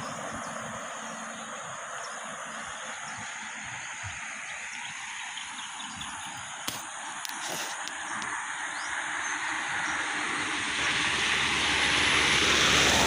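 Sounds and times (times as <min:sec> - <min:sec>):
high insect drone: 0:00.0 - 0:13.0.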